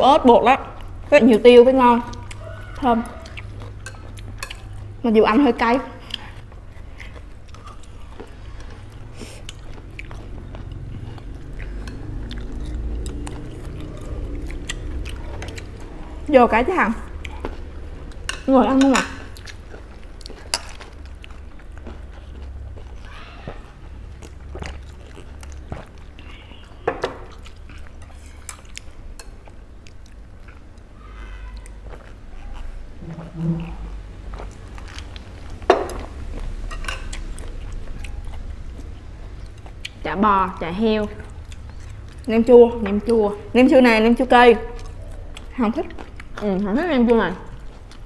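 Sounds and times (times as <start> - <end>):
low room hum: 0.0 - 48.0
crunchy chewing: 1.8 - 5.0, 5.9 - 16.3, 16.9 - 43.3, 44.2 - 48.0
low hum: 7.4 - 26.5.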